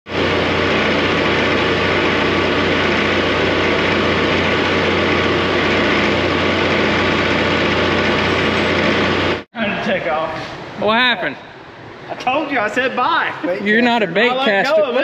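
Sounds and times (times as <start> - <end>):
diesel engine idling: 0.1 - 9.4.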